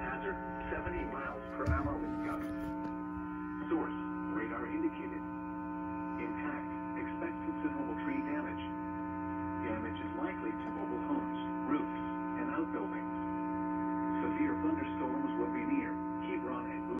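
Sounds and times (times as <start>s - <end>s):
faint television speech: 0.0s - 8.9s, 9.5s - 13.3s, 14.1s - 16.9s
steady electrical hum: 0.0s - 11.2s.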